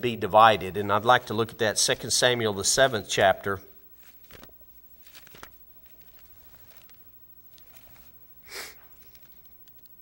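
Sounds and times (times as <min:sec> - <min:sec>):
faint page rustling: 0:03.9 - 0:10.0
sharp nose sniff: 0:08.4 - 0:08.9.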